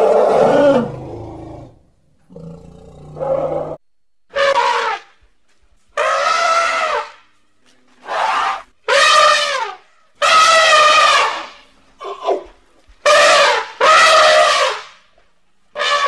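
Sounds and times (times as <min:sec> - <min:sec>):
elephant trumpeting: 0:06.0 - 0:07.2, 0:08.0 - 0:12.4.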